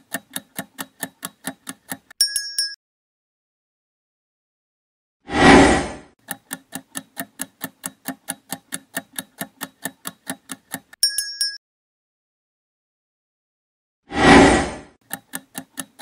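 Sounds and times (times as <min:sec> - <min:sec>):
clock-like timer ticking: 0:00.0 - 0:02.8, 0:06.2 - 0:11.6, 0:15.0 - 0:16.0.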